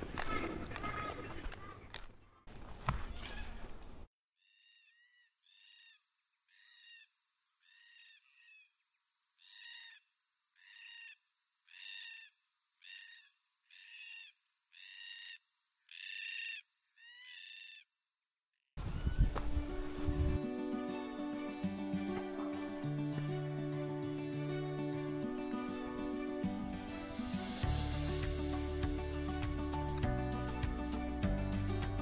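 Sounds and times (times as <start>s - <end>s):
cockatoo calling: 10.6s - 17.8s.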